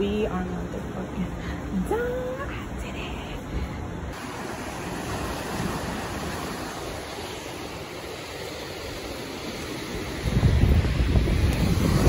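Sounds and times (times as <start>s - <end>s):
surf washing on shore: 4.1s - 12.0s
wind buffeting microphone: 5.0s - 12.0s.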